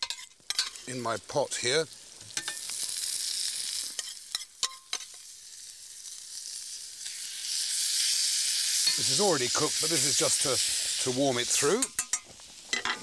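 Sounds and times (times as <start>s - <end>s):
cabbage sizzling in a frying pan: 0.0s - 13.0s
metal spoon clicking on a pan: 4.0s - 5.2s.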